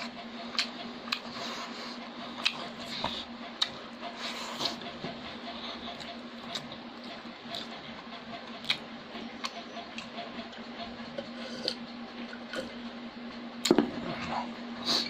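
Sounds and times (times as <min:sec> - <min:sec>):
chewing and mouth clicks: 0:00.5 - 0:01.3, 0:02.4 - 0:03.8, 0:05.8 - 0:07.8, 0:08.5 - 0:08.8.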